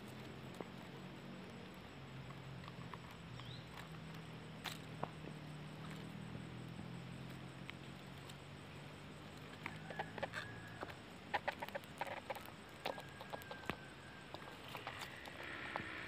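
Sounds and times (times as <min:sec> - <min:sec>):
bird clucking and clicking: 0:09.3 - 0:16.0.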